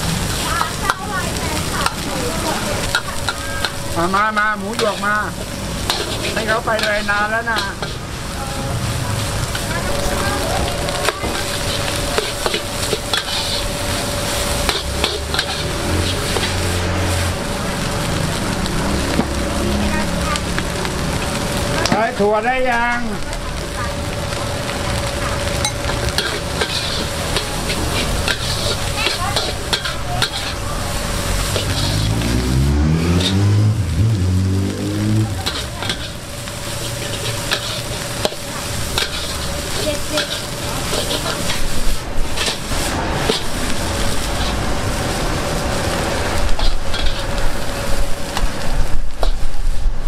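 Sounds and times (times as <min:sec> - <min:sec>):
food sizzling in wok: 0:00.0 - 0:50.0
metal spatula clanking on pan: 0:14.7 - 0:16.6, 0:25.6 - 0:30.6, 0:35.4 - 0:36.2, 0:37.0 - 0:39.4
engine rising in pitch: 0:30.8 - 0:35.5.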